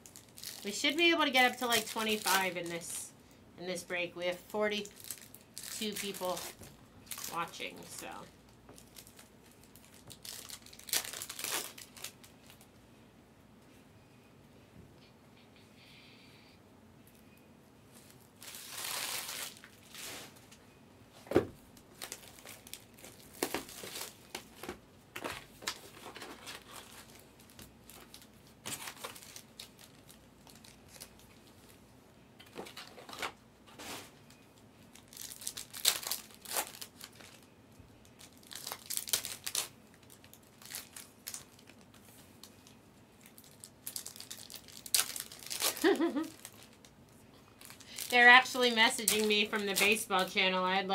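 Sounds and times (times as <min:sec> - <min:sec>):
foil wrappers crinkling and tearing: 0:00.0 - 0:03.0, 0:04.6 - 0:12.7, 0:18.0 - 0:20.5, 0:21.8 - 0:31.8, 0:32.5 - 0:50.6.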